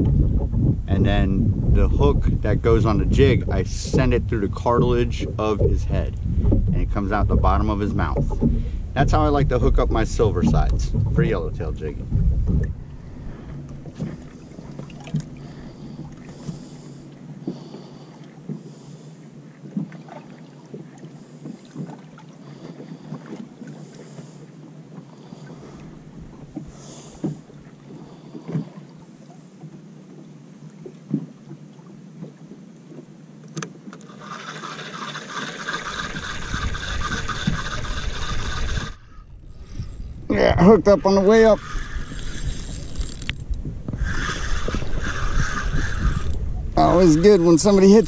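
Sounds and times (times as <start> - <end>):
water and wind noise: 0.0 - 48.0
fishing reel whirring: 34.0 - 48.0.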